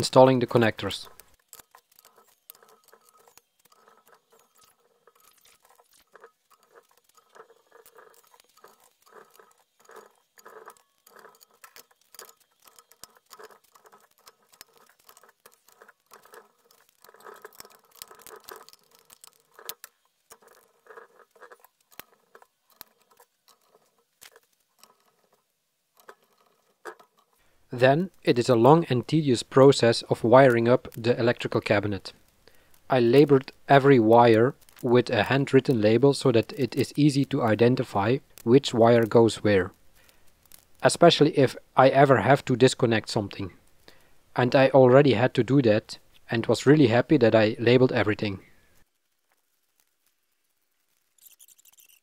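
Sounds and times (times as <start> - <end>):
small metal hardware clicking: 1.0 - 27.4.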